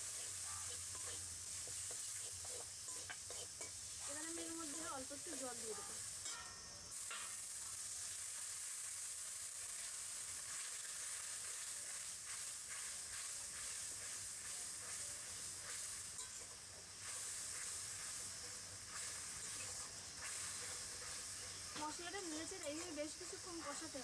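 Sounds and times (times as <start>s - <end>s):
metal spatula scraping pan: 0.0s - 4.9s
paste sizzling in hot oil: 0.0s - 24.0s.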